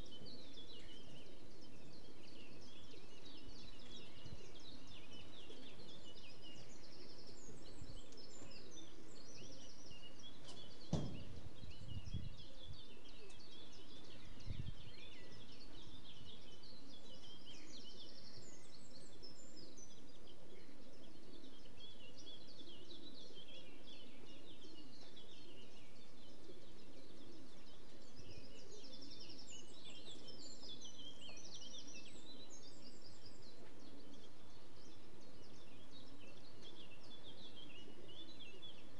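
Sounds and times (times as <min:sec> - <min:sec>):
low outdoor background: 0:00.0 - 0:38.9
songbirds chirping and singing: 0:00.0 - 0:38.9
low thuds: 0:10.6 - 0:12.3.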